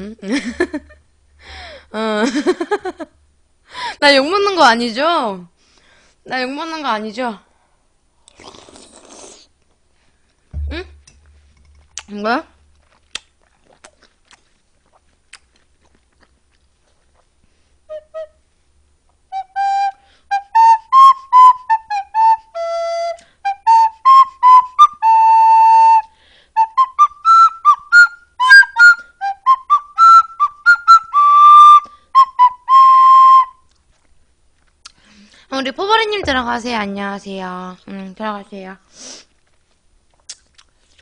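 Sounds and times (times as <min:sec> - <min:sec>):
whistle-like tune: 0:17.9 - 0:18.4, 0:19.3 - 0:33.7.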